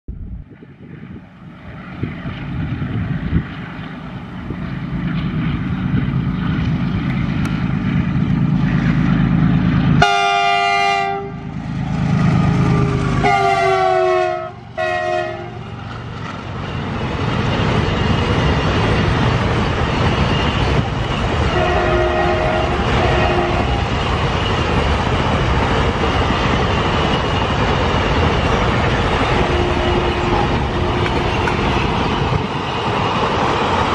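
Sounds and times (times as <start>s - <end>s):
diesel locomotive engine rumble: 0.1s - 33.9s
train wagons rumbling past: 0.2s - 33.9s
locomotive horn blasts: 10.0s - 11.4s, 12.6s - 15.6s, 21.5s - 23.8s, 29.4s - 31.5s.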